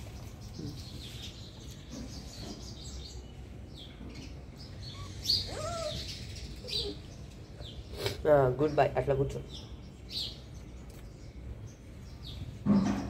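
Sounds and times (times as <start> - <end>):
birds chirping: 0.0 - 13.0
rising and falling bird call: 4.7 - 8.0.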